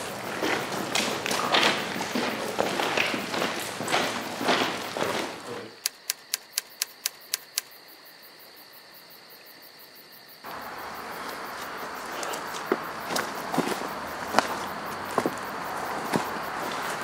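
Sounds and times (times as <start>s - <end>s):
footsteps on outdoor ground: 0.0s - 5.8s, 10.5s - 17.0s
outdoor background hiss: 0.0s - 17.0s.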